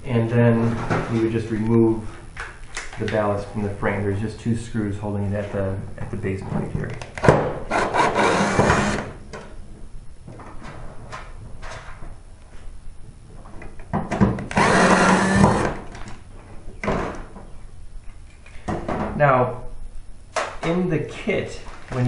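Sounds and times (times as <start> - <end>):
cordless drill running: 7.7 - 9.1, 14.5 - 15.8.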